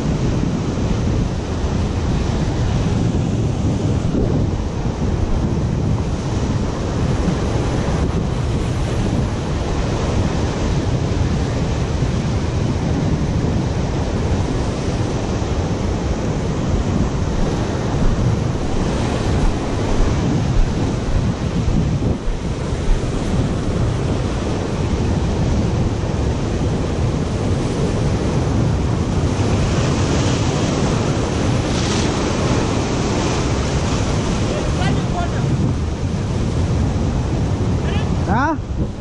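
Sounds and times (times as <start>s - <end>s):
wind buffeting microphone: 0.0s - 39.0s
surf breaking on rocks: 16.3s - 39.0s.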